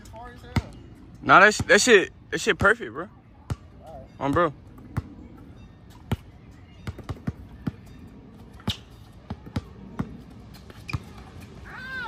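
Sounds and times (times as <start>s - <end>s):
basketball bouncing on hard court: 6.1s - 8.0s, 8.6s - 11.3s.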